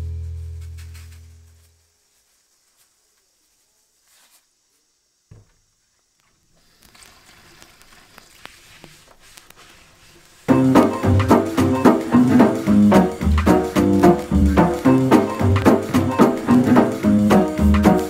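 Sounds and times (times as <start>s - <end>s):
upbeat piano and guitar music: 10.5s - 18.0s.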